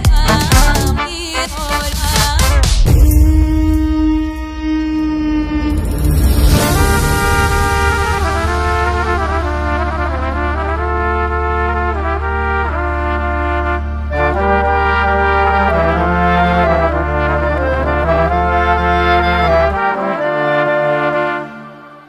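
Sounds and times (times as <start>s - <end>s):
held brass-like notes: 0.3s - 22.0s
deep bass tone: 2.8s - 12.9s.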